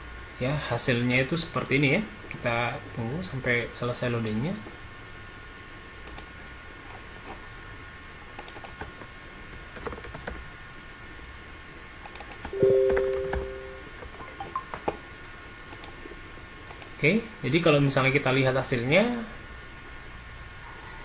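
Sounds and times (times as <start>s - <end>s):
keyboard typing: 8.4s - 9.0s, 9.6s - 10.4s, 12.1s - 14.8s
two-tone electronic beep: 12.6s - 13.8s.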